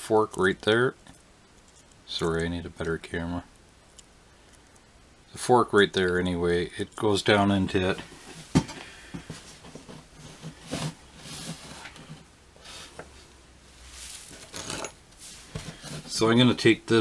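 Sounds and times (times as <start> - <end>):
faint taps and rustles: 8.0 - 12.3.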